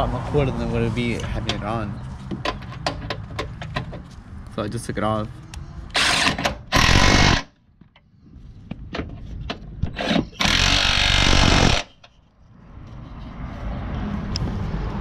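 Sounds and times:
cordless power tool running: 10.4 - 11.9.

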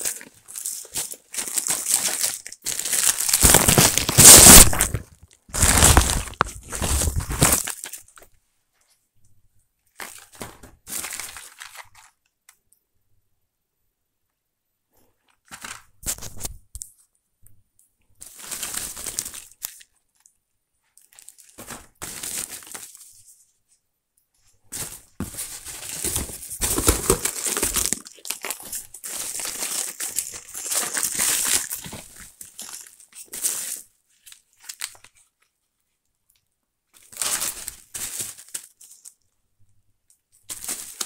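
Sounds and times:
packing paper crinkling: 0.0 - 8.2, 10.0 - 12.3, 18.2 - 20.3, 21.0 - 23.3, 24.7 - 35.4, 37.0 - 39.2, 40.5 - 41.0
cardboard box handled: 25.2 - 28.0.

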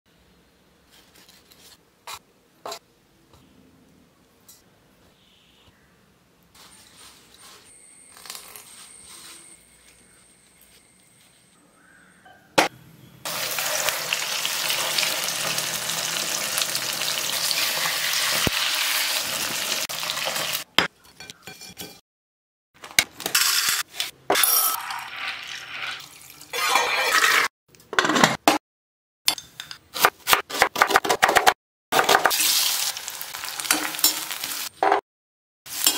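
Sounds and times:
fish sizzling in hot oil: 13.3 - 20.6, 32.3 - 34.7.

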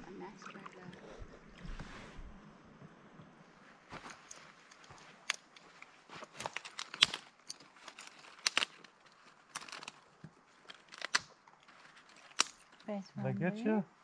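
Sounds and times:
dry twigs snapping and crackling: 5.2 - 12.9.

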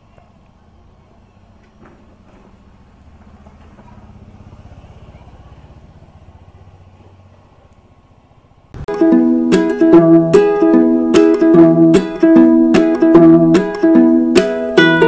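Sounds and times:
motorcycle engine passing: 2.3 - 7.4
ukulele music: 8.8 - 15.0.

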